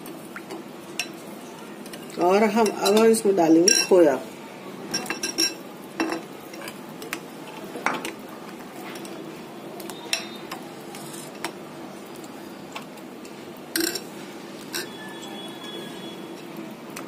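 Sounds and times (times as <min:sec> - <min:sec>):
metal spoon clinking on dishes: 0:02.6 - 0:04.0, 0:13.8 - 0:14.1, 0:14.7 - 0:15.2.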